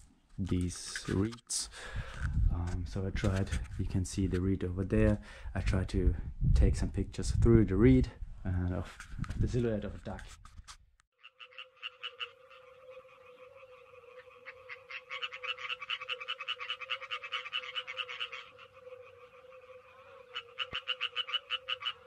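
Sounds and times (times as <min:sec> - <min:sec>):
tree frogs calling: 0:11.2 - 0:22.0.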